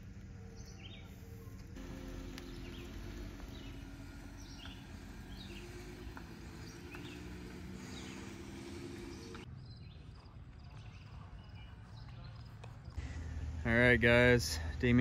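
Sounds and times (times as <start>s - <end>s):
minivan driving rumble: 0.0s - 9.6s, 12.8s - 15.0s
small bird chirping: 0.4s - 12.6s.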